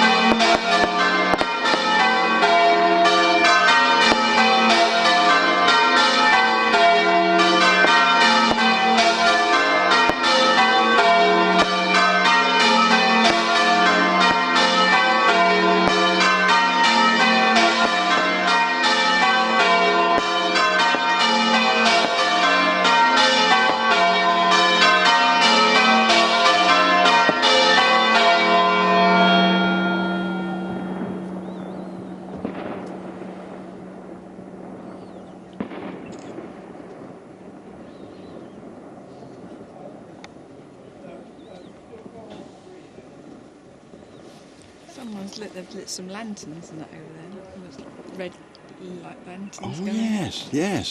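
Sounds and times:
church bells ringing: 0.0 - 31.4.

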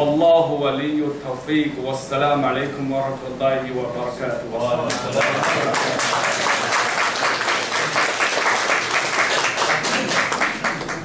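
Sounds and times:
audience applauding: 4.9 - 11.0.

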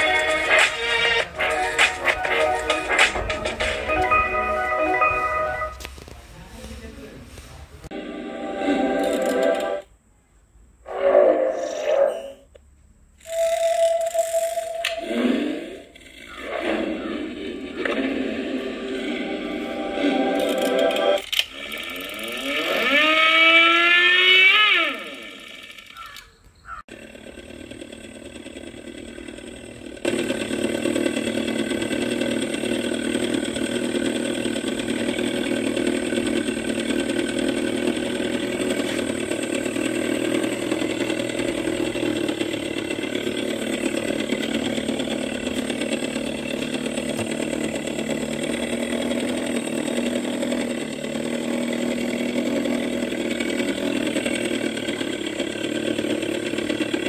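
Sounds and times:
imitation engine idling: 0.0 - 9.8, 26.9 - 57.0
rising synthetic engine tones: 7.9 - 9.9, 13.2 - 25.5.

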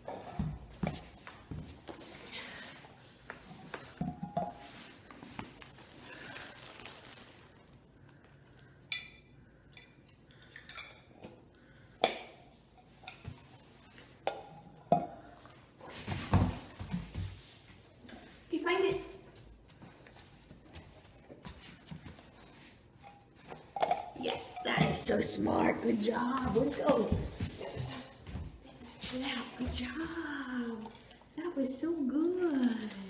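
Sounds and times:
shuffling: 24.8 - 30.6.

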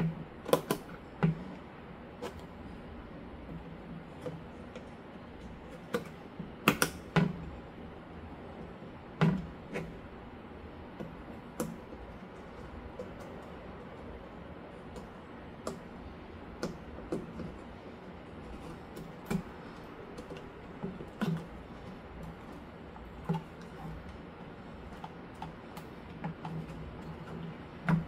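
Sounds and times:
computer parts clicking and tapping: 0.0 - 1.6, 4.1 - 7.5, 10.9 - 28.0
low steady hum: 0.0 - 28.0.

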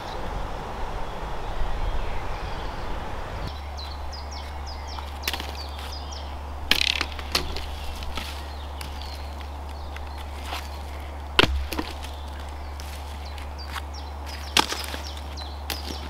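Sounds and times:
small bird chirping: 1.8 - 16.0
dry sticks snapping: 4.4 - 16.0.

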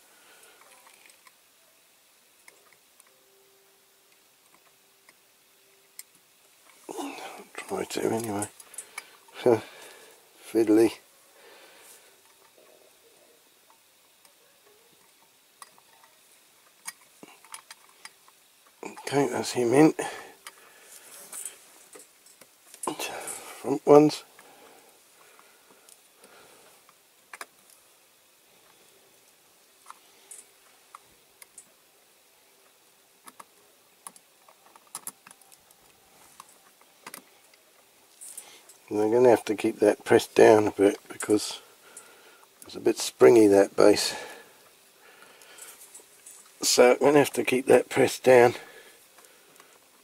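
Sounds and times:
small clicks and taps on metal: 33.2 - 35.8.

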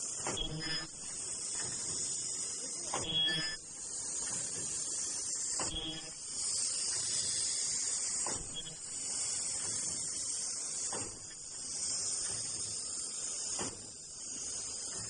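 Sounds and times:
machine hiss and rumble: 0.0 - 15.0.

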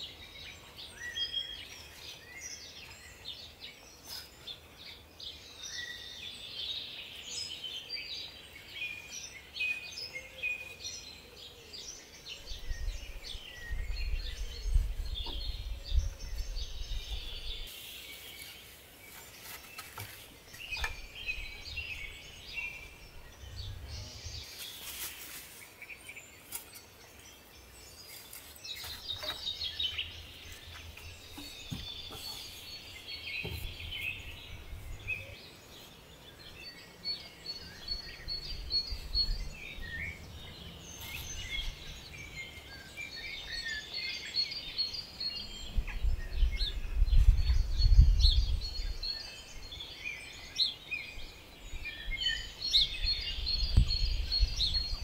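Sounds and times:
small birds chirping and singing: 0.0 - 55.0
short rustling noises: 24.5 - 25.8.

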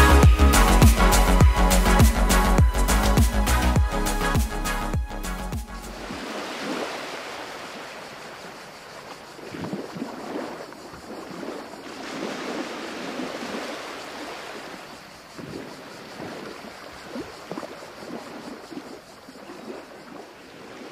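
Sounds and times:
sea waves washing on shore: 6.0 - 20.9.

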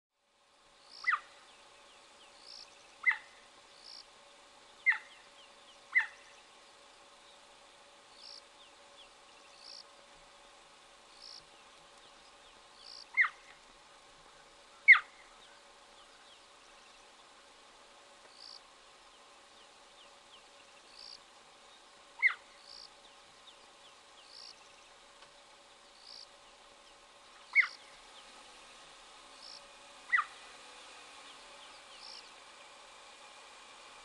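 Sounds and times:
cheetah chirping: 0.9 - 1.4, 2.4 - 4.0, 4.8 - 6.4, 12.1 - 13.5, 14.8 - 16.4, 22.2 - 23.6, 27.5 - 28.0, 29.4 - 30.4.

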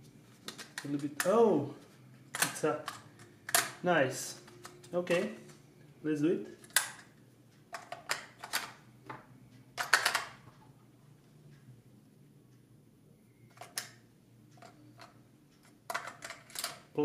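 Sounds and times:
batteries clicking and rattling: 14.6 - 16.9.

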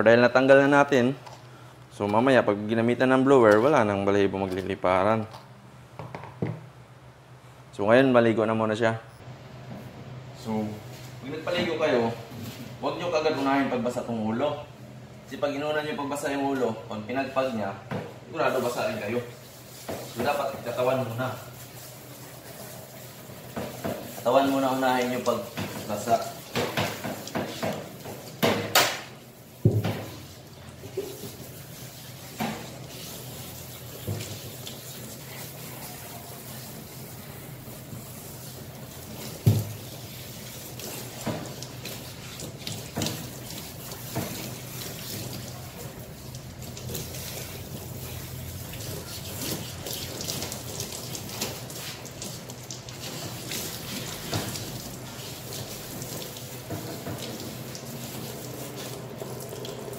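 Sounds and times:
water spraying from hose: 18.5 - 28.5, 29.2 - 59.9.

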